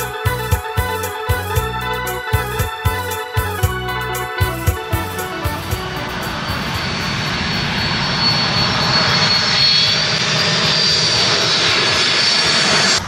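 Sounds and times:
jet airliner passing overhead: 4.4s - 13.0s.

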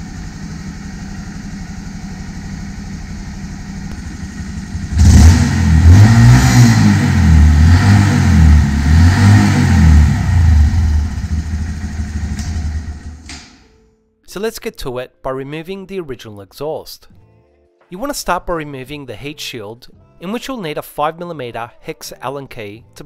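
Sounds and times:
motorcycle engine revving: 0.0s - 13.6s.

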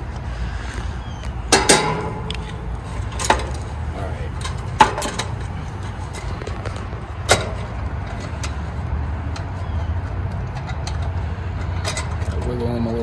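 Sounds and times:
steady low rumble: 0.0s - 12.3s
clicks of wire connectors handled: 4.3s - 12.5s.

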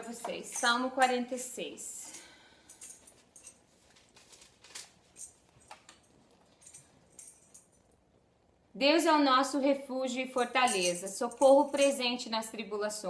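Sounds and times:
thin pages rustling: 3.7s - 5.2s.

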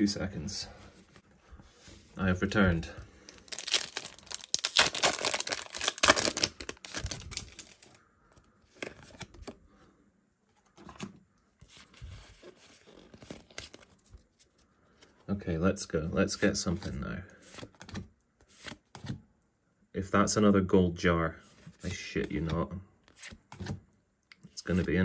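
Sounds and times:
cards rustling: 2.4s - 9.6s, 10.6s - 15.2s
foil wrapper tearing and crinkling: 3.4s - 8.0s.

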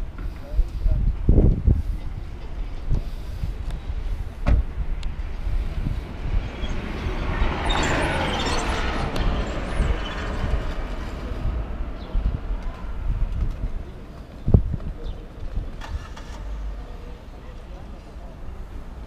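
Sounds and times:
vehicle passing by: 5.2s - 13.1s.

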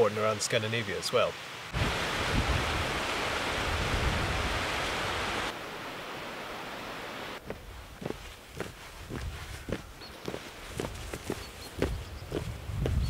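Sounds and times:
stream rushing over rocks: 0.0s - 8.8s
soft footsteps: 7.4s - 13.0s.

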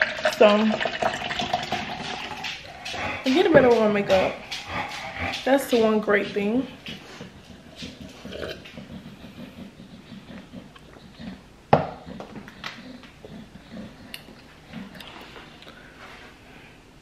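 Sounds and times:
person drinking and swallowing: 0.0s - 3.3s, 7.7s - 15.8s.

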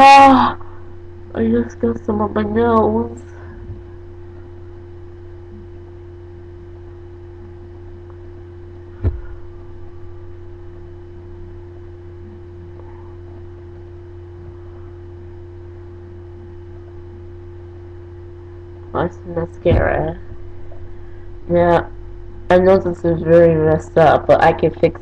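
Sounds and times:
low electrical hum: 0.0s - 25.0s
sharp knock: 9.0s - 9.4s.

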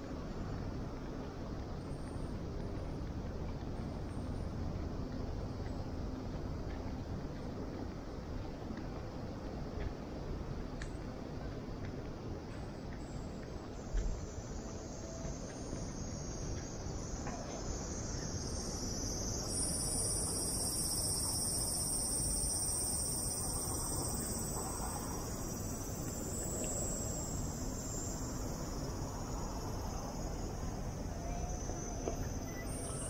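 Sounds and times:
street background noise: 0.0s - 33.0s
cicadas buzzing: 13.7s - 33.0s.

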